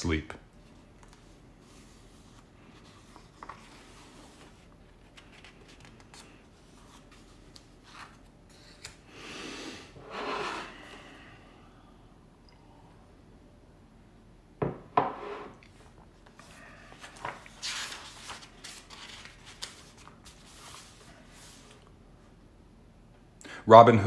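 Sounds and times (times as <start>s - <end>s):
book pages rustling: 0.6s - 9.0s, 16.2s - 21.9s.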